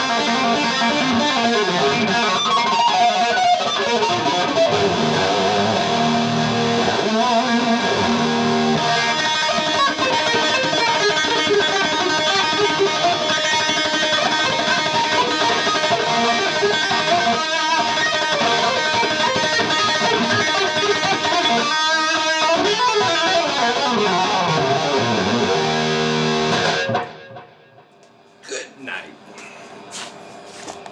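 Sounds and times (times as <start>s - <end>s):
electric guitar solo: 0.0s - 27.5s.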